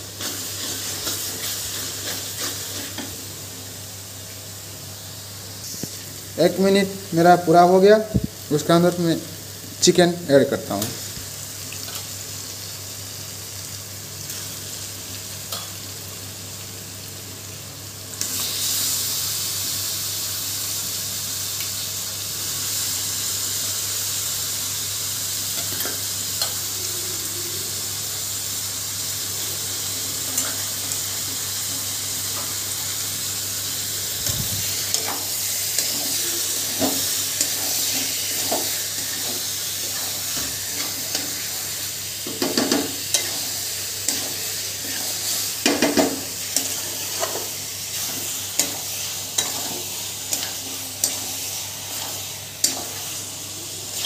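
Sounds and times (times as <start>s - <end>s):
chicken sizzling in pan: 0.0s - 54.0s
metal spatula scraping pan: 44.1s - 48.8s.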